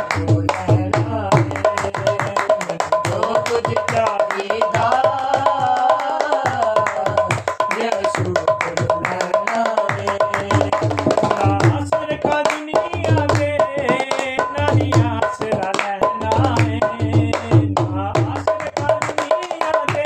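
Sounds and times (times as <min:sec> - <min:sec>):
hand drum playing: 0:00.0 - 0:03.6
man singing devotional song: 0:00.0 - 0:20.0
hand claps: 0:01.4 - 0:14.3, 0:18.4 - 0:20.0.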